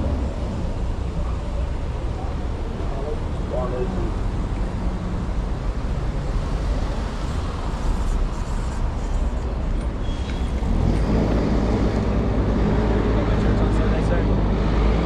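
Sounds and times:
passing vehicles rumbling: 0.0 - 15.0
high squeal: 10.0 - 10.7.

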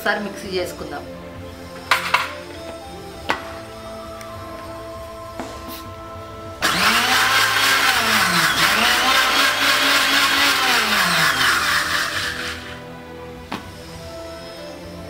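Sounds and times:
mixer grinder motor running: 6.6 - 12.9.

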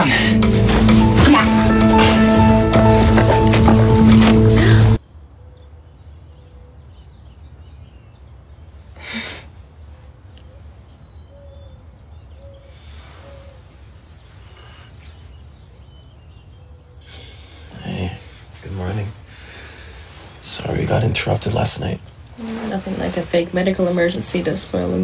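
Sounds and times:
faint bird calls chirping: 5.0 - 25.0.

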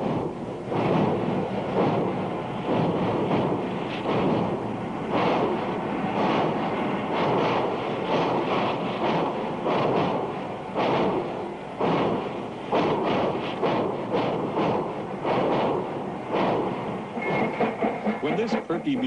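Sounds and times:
steady rushing noise: 0.0 - 19.0
steam locomotive chuffs: 0.0 - 19.0.

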